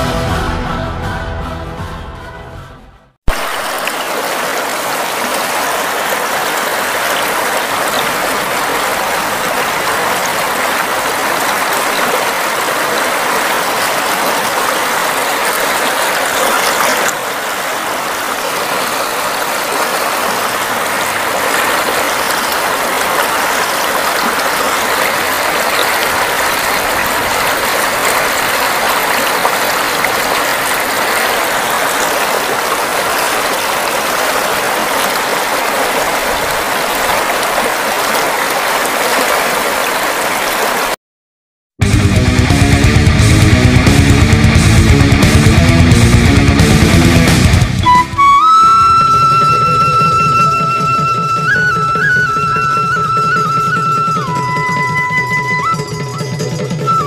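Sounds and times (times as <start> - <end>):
river water rushing over rocks: 3.3 - 41.0, 47.8 - 55.8.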